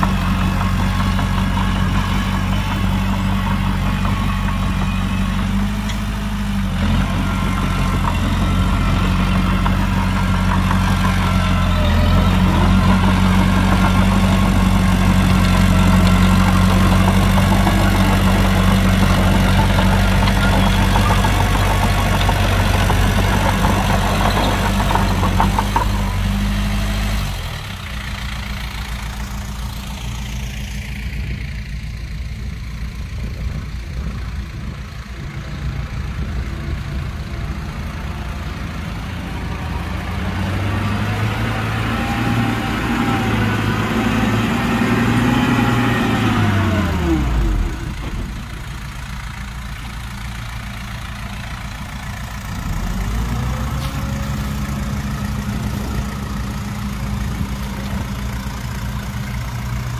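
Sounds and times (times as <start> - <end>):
heavy machine diesel engine: 0.0 - 59.9.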